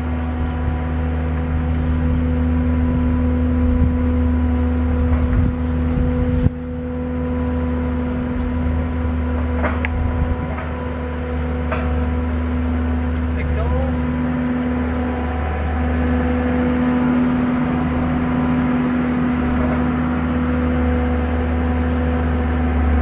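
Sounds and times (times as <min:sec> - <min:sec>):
engine idling: 0:00.0 - 0:23.0.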